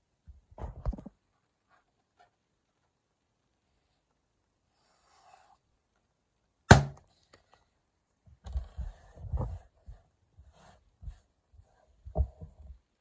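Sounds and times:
balloon popping bang: 6.7s - 7.0s.

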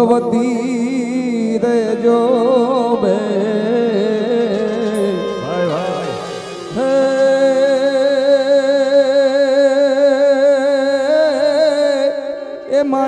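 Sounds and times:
man singing: 0.0s - 13.0s
band accompaniment: 4.6s - 9.2s.

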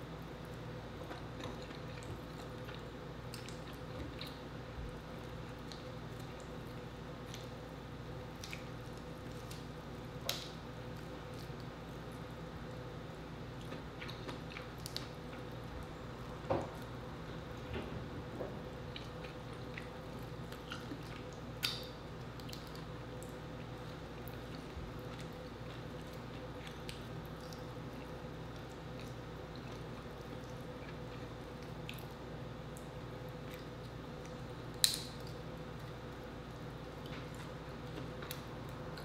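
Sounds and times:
steady low hum: 0.0s - 39.0s
wet chewing and squishing: 1.0s - 4.5s, 8.3s - 12.3s, 13.5s - 15.8s, 18.9s - 39.0s
crab shell cracking: 34.7s - 35.4s.

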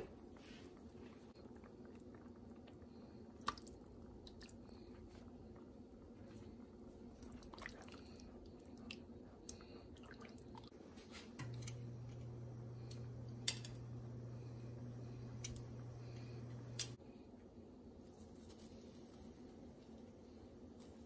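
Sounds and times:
gravy simmering in a pan: 0.0s - 10.8s
steady low hum: 0.0s - 21.0s.

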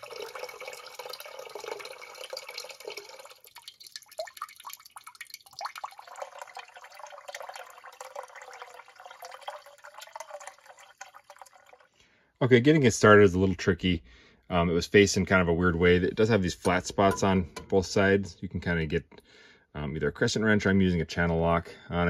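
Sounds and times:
water splashing into a plastic tub: 0.0s - 12.0s.

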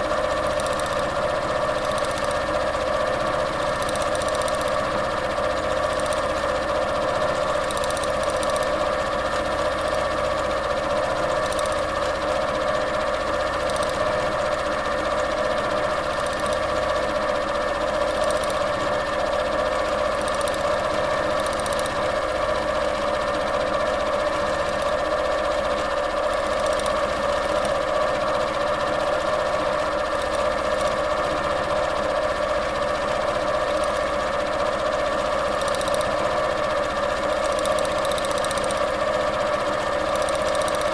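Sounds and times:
sewing machine running: 0.0s - 40.9s.

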